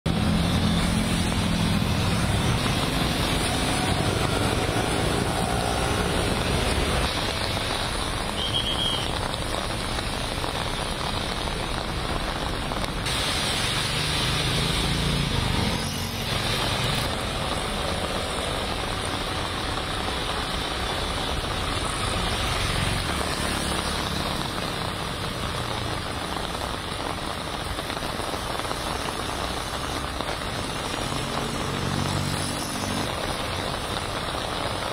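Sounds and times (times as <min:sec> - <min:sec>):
vehicle engines running: 0:00.1 - 0:08.3
rain and wet tyres hissing: 0:00.1 - 0:34.9.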